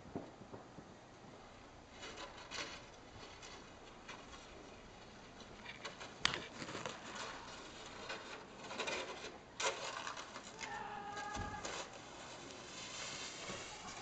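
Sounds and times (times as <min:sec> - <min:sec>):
plastic sled rustling and knocking: 0:01.9 - 0:14.0.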